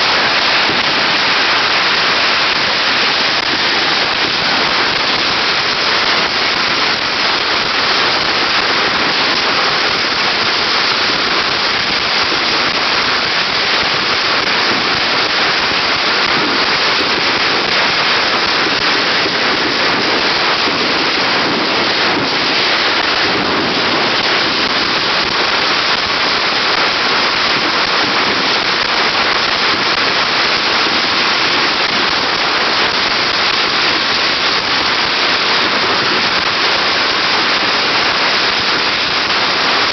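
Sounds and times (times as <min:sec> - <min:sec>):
firecrackers crackling: 0:00.0 - 0:39.9.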